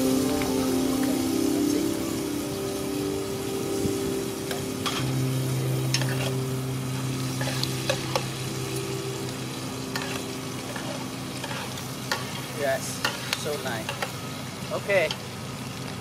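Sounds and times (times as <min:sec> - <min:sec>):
food sizzling in a pan: 0:00.0 - 0:16.0
metal utensils scraping a pan: 0:05.9 - 0:06.4, 0:07.3 - 0:08.2, 0:10.0 - 0:14.2.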